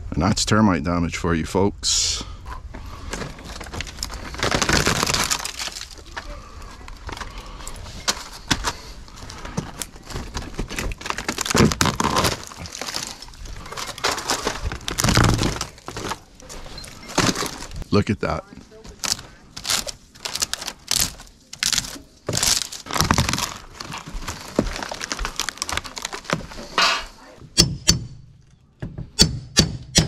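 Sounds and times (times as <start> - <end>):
rotten wood cracking and clattering: 2.8 - 26.6.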